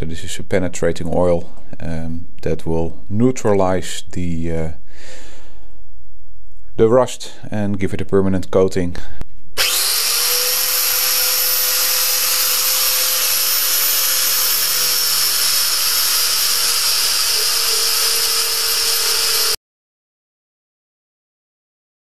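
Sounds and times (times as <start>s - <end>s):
wire wheel grinder scrubbing metal: 9.6s - 19.6s.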